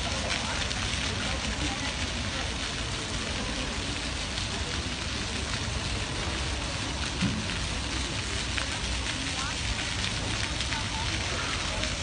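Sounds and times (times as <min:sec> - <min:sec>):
fountain water splashing: 0:00.0 - 0:12.0.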